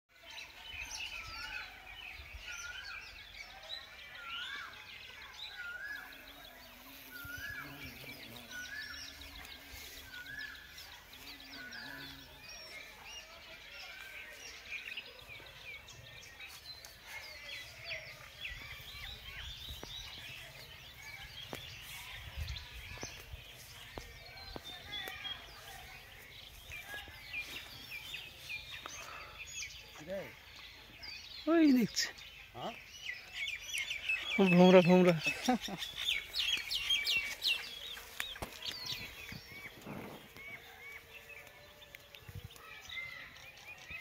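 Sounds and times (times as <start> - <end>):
small birds chirping: 0.1 - 44.0.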